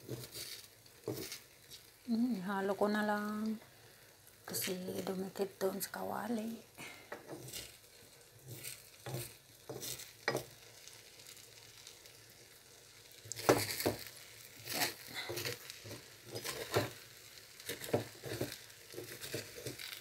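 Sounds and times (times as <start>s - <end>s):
metal spatula scraping a pan: 0.0s - 1.9s, 7.2s - 7.8s, 8.4s - 10.6s, 13.3s - 20.0s
sizzle of frying: 0.0s - 20.0s.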